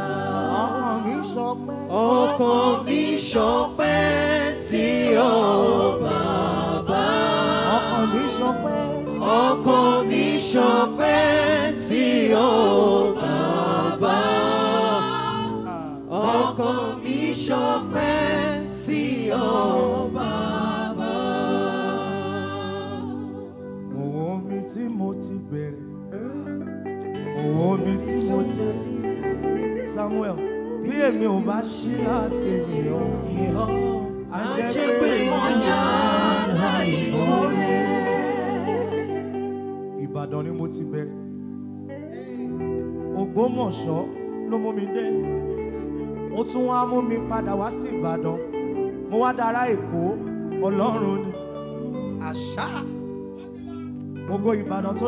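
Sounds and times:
voices singing gospel: 0:00.0 - 0:25.4, 0:27.4 - 0:41.0
sustained instrumental backing: 0:00.0 - 0:55.0.

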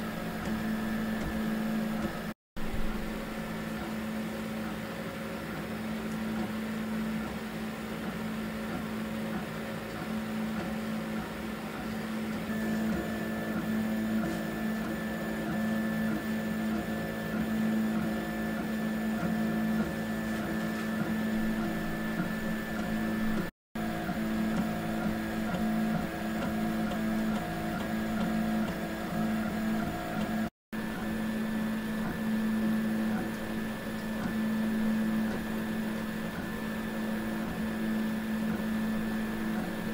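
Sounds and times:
three-d printer stepper motor whine: 0:00.0 - 0:02.4, 0:11.1 - 0:39.9.

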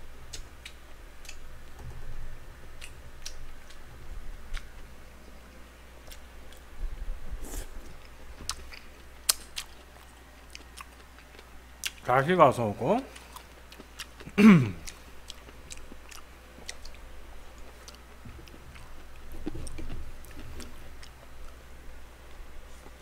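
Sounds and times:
person chewing: 0:00.3 - 0:01.4, 0:02.8 - 0:03.8, 0:07.4 - 0:12.0, 0:13.1 - 0:21.6.

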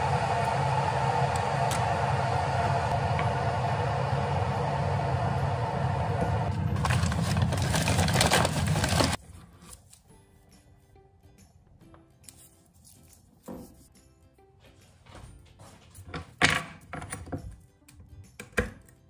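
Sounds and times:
machine hum: 0:00.0 - 0:09.2
paper bag crinkling: 0:06.5 - 0:09.2.

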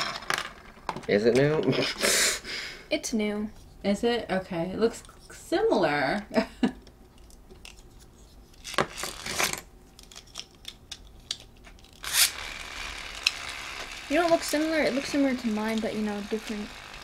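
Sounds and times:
plastic toy clicks and rustling: 0:08.9 - 0:17.0.

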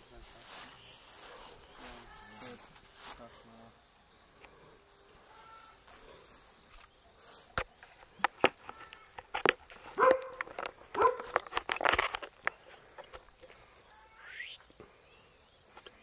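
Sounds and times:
dog barking: 0:10.0 - 0:10.4, 0:11.0 - 0:11.4.

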